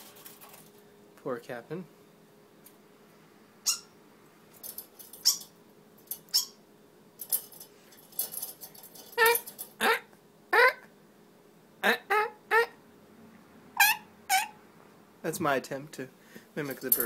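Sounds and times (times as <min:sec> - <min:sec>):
songbird squawking: 0:03.6 - 0:04.0, 0:05.2 - 0:05.5, 0:06.3 - 0:06.6, 0:09.2 - 0:10.9, 0:11.8 - 0:12.8, 0:13.8 - 0:14.6.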